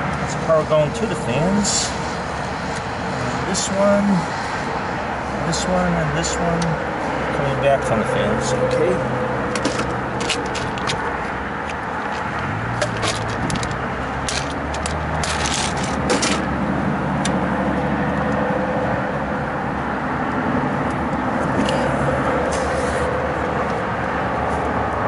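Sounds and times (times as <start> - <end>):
hands handling wiring and tools: 9.5 - 16.5.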